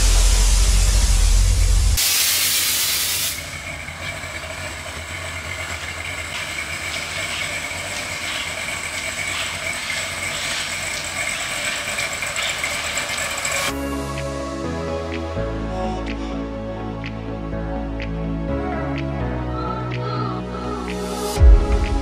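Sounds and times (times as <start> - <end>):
loud air hiss: 0.0 - 3.6.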